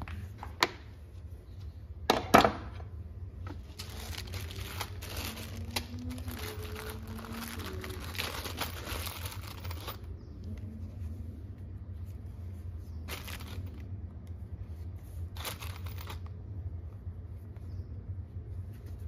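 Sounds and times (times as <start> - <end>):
steady low hum: 0.0 - 19.0
plastic bag crinkling: 3.6 - 10.1, 13.1 - 13.9, 15.4 - 16.3.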